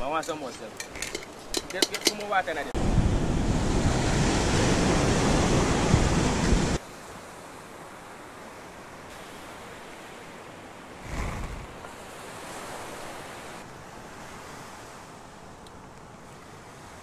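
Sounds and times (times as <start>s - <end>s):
surf breaking on beach: 2.4s - 6.8s.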